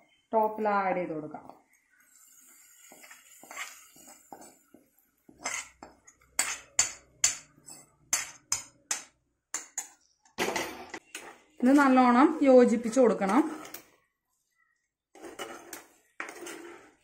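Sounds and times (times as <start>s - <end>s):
spoon scraping metal pot: 2.1s - 10.2s, 10.8s - 14.0s, 15.1s - 17.0s.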